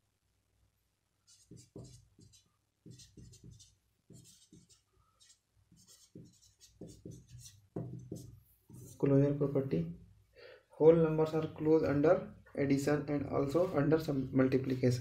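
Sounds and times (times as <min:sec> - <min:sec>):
marker pen scratching on paper: 0:01.2 - 0:09.2.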